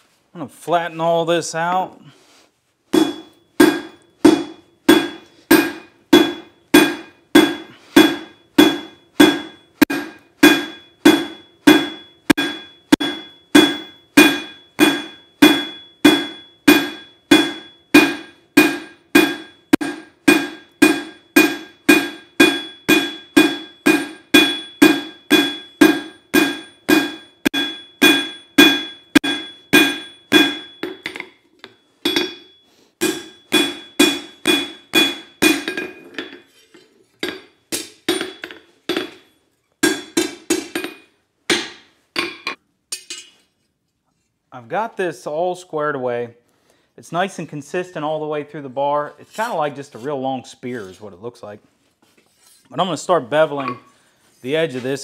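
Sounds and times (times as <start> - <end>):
hammer striking steel on anvil: 2.9 - 43.4.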